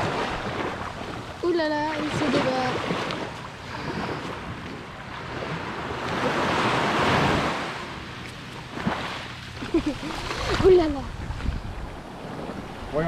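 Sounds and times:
surf breaking on beach: 0:05.3 - 0:07.9, 0:08.7 - 0:13.0
wind on microphone: 0:09.7 - 0:13.0.

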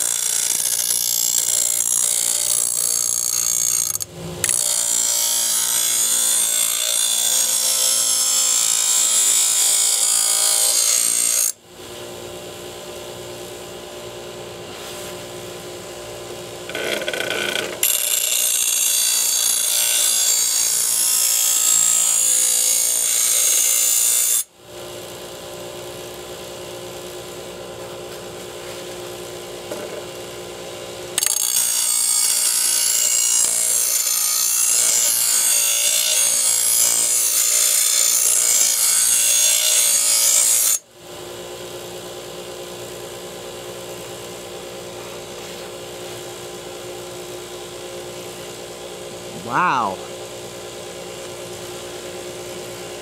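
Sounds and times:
bench grinder motor hum: 0:00.0 - 0:11.6, 0:16.6 - 0:24.4, 0:31.2 - 0:40.8.

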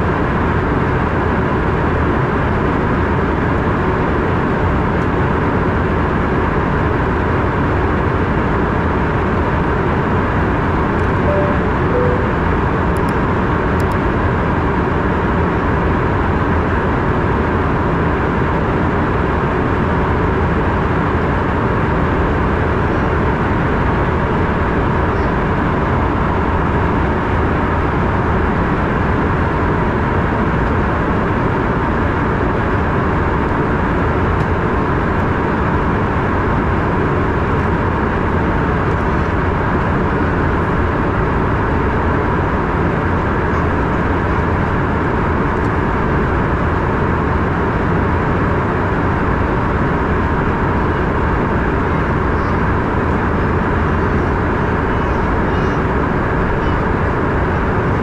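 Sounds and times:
airflow rush in cabin: 0:00.0 - 0:58.0
jet engines droning: 0:00.1 - 0:58.0
faint steady high tone: 0:11.0 - 0:12.8.

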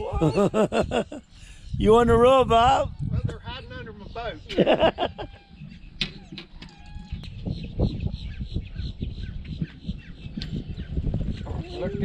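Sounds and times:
bird calling: 0:03.8 - 0:12.0.

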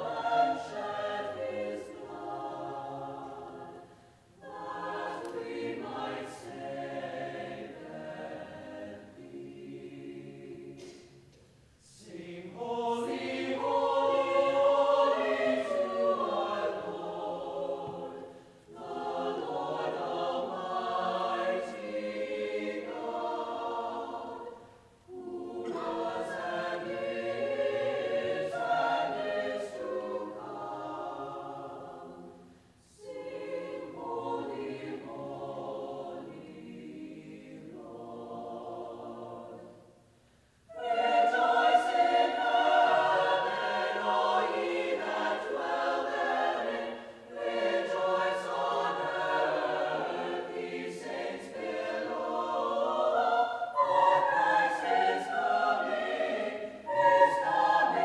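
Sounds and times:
mixed choir singing: 0:00.0 - 0:40.1, 0:40.7 - 0:58.0.

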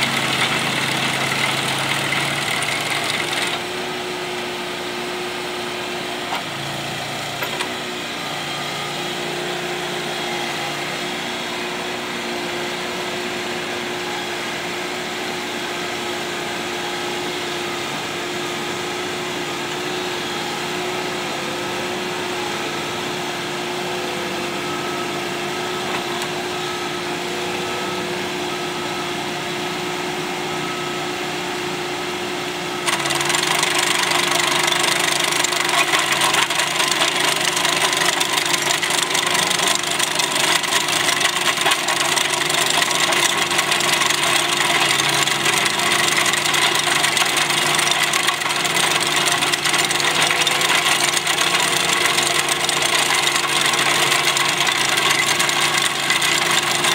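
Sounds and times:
digging chain cutting soil: 0:00.0 - 0:03.7, 0:32.8 - 0:56.9
trencher running: 0:00.0 - 0:04.6, 0:32.8 - 0:56.9.

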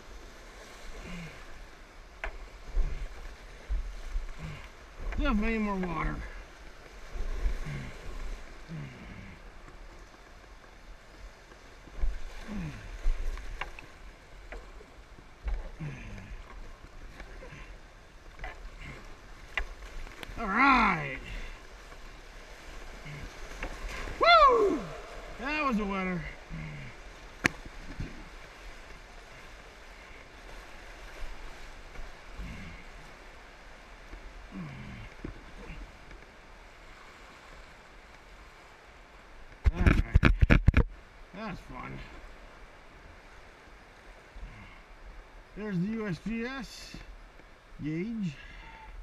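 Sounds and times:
rushing water: 0:00.0 - 0:49.0
paddle clicks: 0:13.0 - 0:17.6, 0:18.2 - 0:20.4, 0:27.4 - 0:29.0
kayak hull knocking on rocks: 0:39.6 - 0:40.9.

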